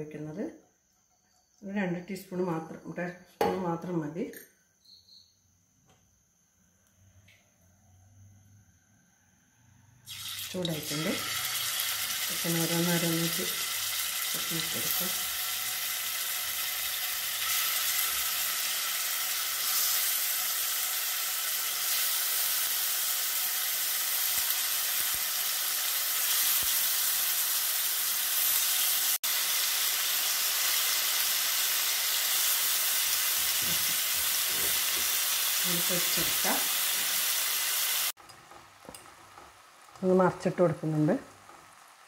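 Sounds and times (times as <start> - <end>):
chicken sizzling in a frying pan: 10.0 - 42.0.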